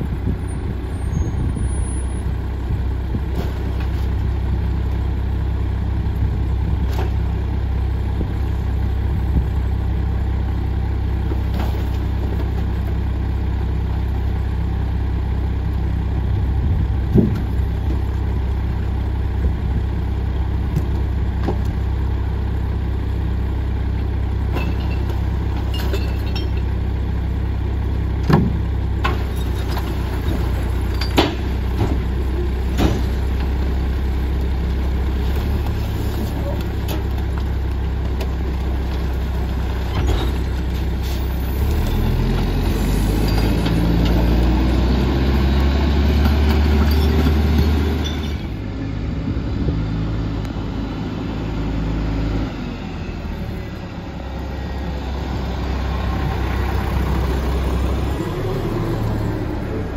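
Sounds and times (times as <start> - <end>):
garbage truck diesel engine idling: 4.1 - 45.1.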